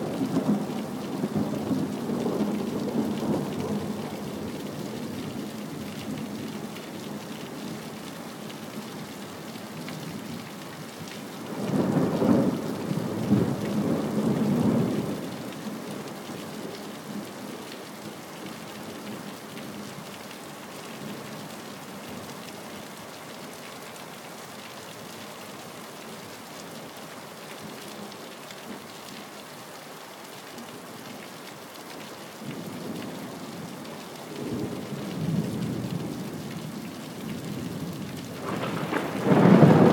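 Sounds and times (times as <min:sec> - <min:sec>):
steady rain falling: 0:00.0 - 0:39.9
thunder rumbling: 0:38.4 - 0:39.9.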